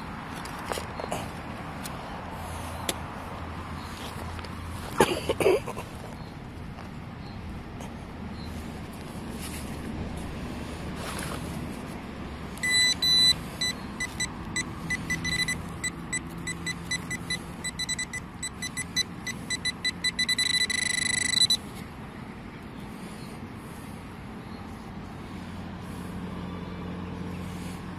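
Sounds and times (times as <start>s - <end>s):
pinpointer beeping: 12.6s - 21.6s.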